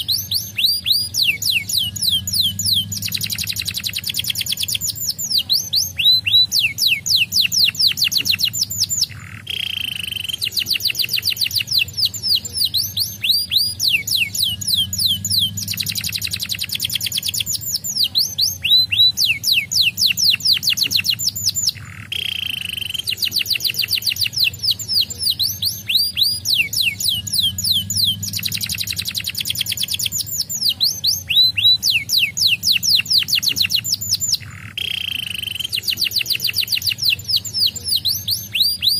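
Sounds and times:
canary singing: 0.0 - 38.9.

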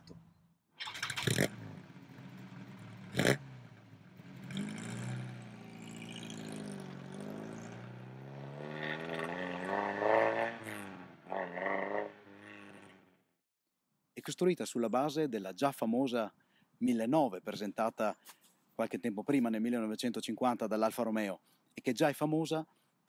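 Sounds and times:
car engine revving: 0.9 - 13.1.

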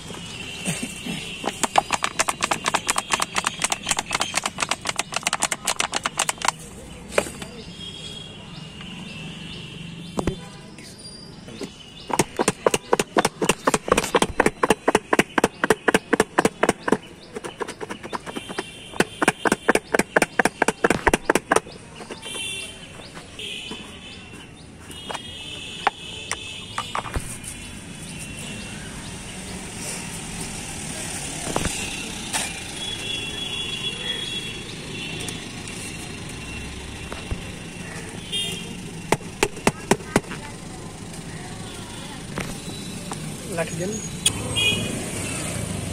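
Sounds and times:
street background: 0.0 - 45.9
plastic cups rattling: 1.4 - 7.4, 11.6 - 22.6, 39.1 - 40.4.

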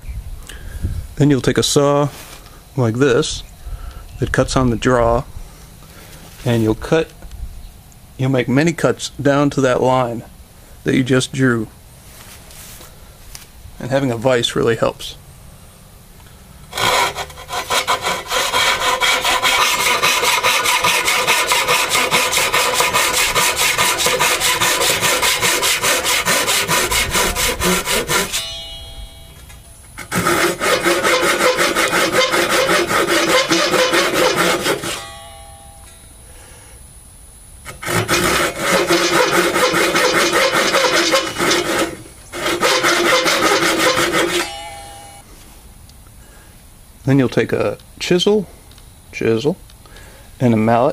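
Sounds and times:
pull saw cutting wood: 16.7 - 28.8, 30.0 - 35.2, 37.7 - 44.9.

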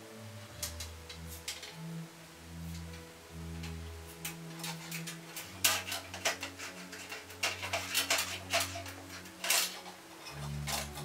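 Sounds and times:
low steady hum: 0.0 - 11.0
wire hanger scraping metal drum: 2.7 - 11.0.

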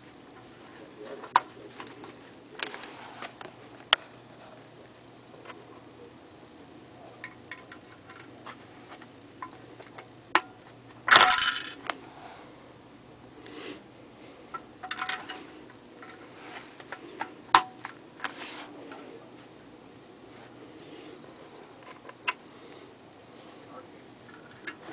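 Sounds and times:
coin dropping: 11.1 - 11.9.

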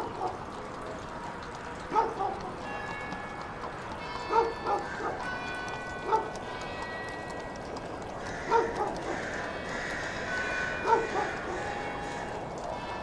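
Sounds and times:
dog barking: 0.0 - 0.4, 1.9 - 2.5, 4.3 - 5.2, 6.0 - 6.4, 8.5 - 9.1, 10.8 - 11.5.

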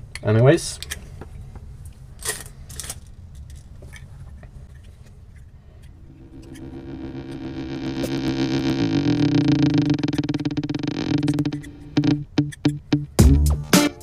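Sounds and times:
background music: 11.8 - 14.0.

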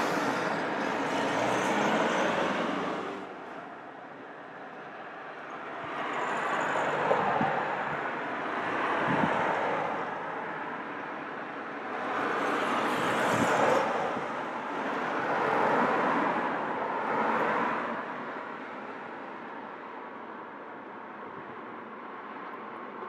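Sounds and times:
traffic passing on wet road: 0.0 - 19.6.

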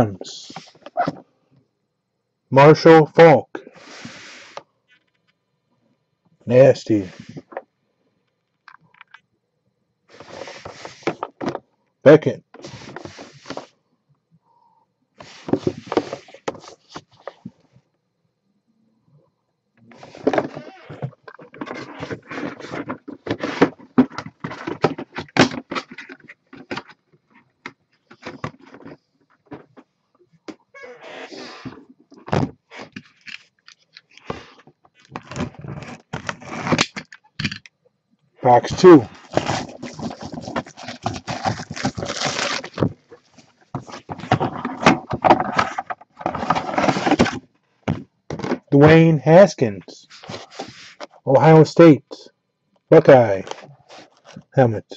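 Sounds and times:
plastic shrink wrap crackling: 39.2 - 44.1
packaging crinkling and clicking: 39.2 - 47.4.

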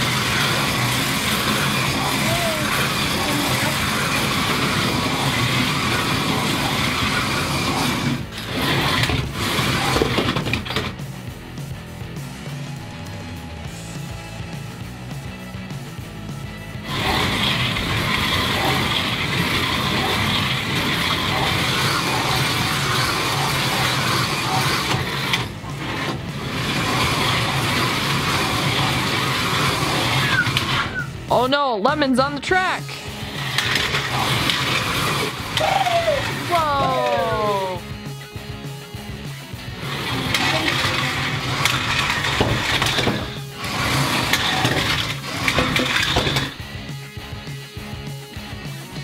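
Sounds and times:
cars rattling in track slots: 0.0 - 11.3, 16.8 - 31.3, 32.9 - 37.4, 39.6 - 46.8
slot car motors whirring: 0.0 - 31.3, 32.7 - 49.0.

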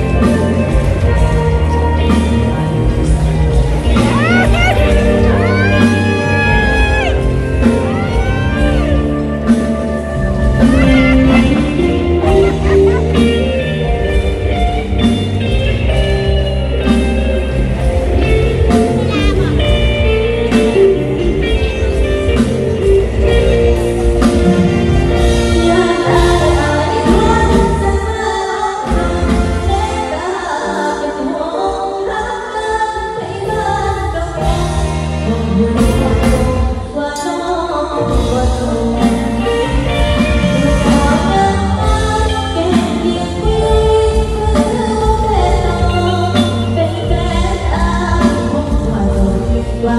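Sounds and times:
backing music over loudspeakers: 0.0 - 49.9
girl singing into microphone: 25.5 - 49.9.

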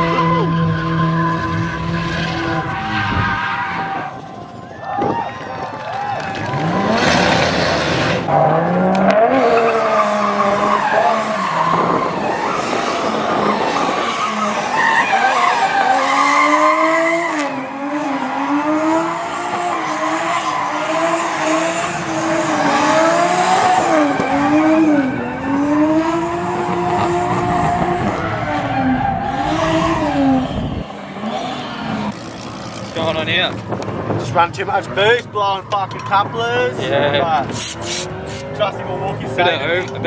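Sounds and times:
car engine revving hard: 6.4 - 34.1.

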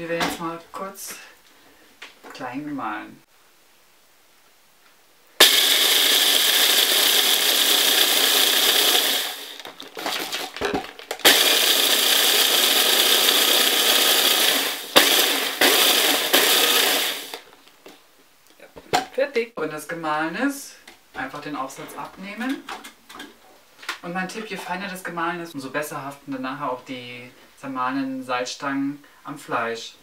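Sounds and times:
hand blender grinding pretzels: 5.4 - 17.5.

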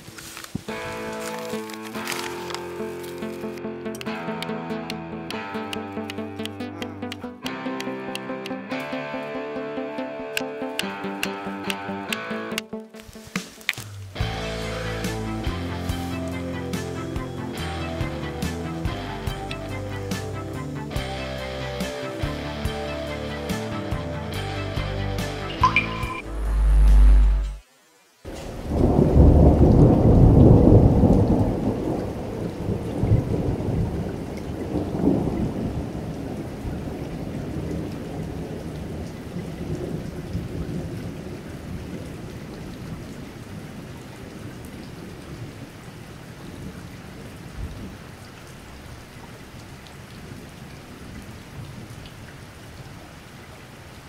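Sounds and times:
steady rain: 0.0 - 12.0, 12.8 - 25.0, 26.3 - 54.0
thunder rumbling: 28.3 - 45.8.

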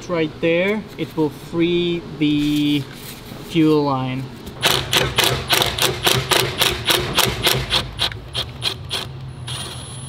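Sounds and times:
ratchet wrench clicking: 4.6 - 9.8.

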